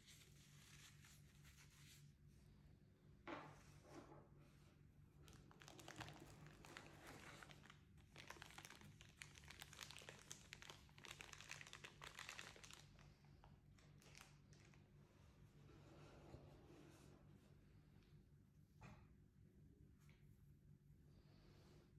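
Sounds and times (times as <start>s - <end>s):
plastic bag crinkling: 5.3s - 13.1s, 13.8s - 14.8s.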